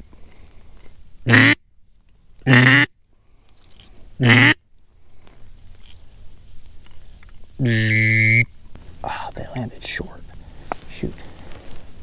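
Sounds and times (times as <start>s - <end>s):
duck call quacks: 1.3s - 1.6s, 2.5s - 2.9s, 4.2s - 4.6s, 7.6s - 8.5s.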